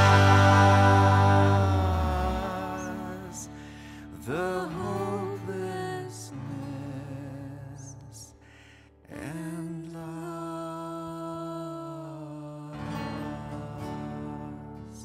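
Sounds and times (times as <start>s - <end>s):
music with long held notes: 0.0s - 5.6s.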